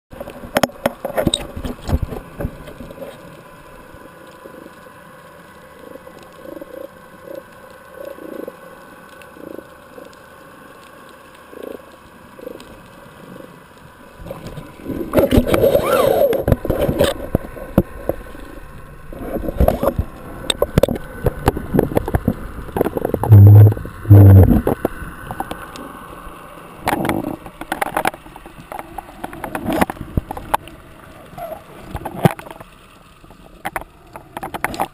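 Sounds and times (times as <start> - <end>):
water sloshing and gurgling: 11.5 - 26.0, 26.7 - 34.9
heavy thumps: 23.0 - 24.8.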